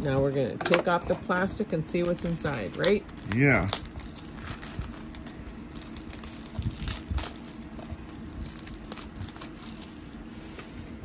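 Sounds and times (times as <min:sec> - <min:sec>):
shrink-wrap crinkling: 0:02.0 - 0:10.8.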